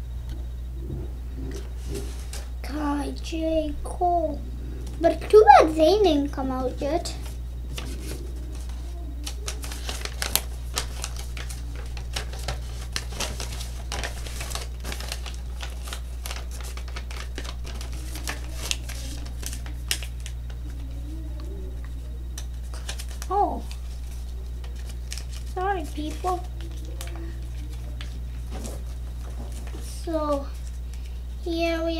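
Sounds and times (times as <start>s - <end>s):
low electrical hum: 0.0s - 31.9s
toy packaging clicking and crinkling: 8.6s - 20.8s.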